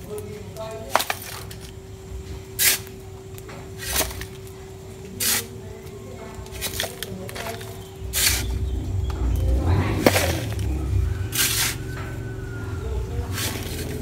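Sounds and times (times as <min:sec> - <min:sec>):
metal shovel scooping sand: 0:05.2 - 0:05.5, 0:08.0 - 0:08.6, 0:11.3 - 0:11.8.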